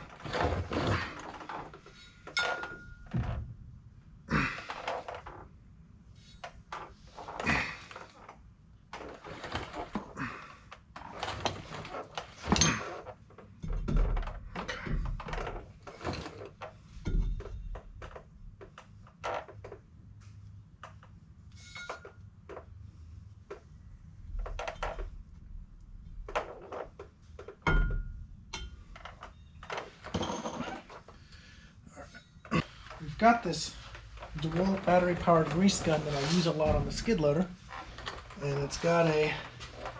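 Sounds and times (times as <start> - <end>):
metal clunks and scraping: 0.0 - 3.6, 11.1 - 18.0, 26.4 - 39.9
heavy thuds: 32.6 - 39.9.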